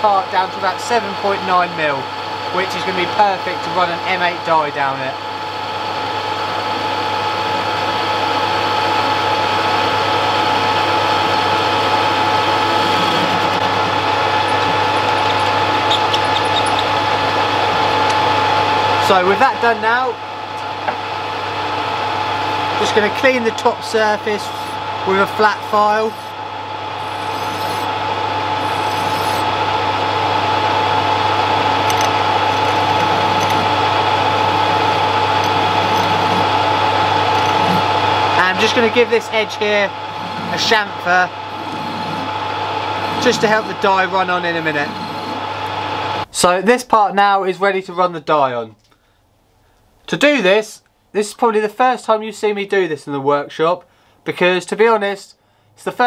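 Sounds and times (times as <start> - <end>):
metal lathe whining: 0.0 - 20.2, 20.8 - 46.3
file rubbing on spinning metal: 11.1 - 18.1, 22.7 - 26.4, 27.0 - 28.0, 28.6 - 29.6, 30.9 - 46.2.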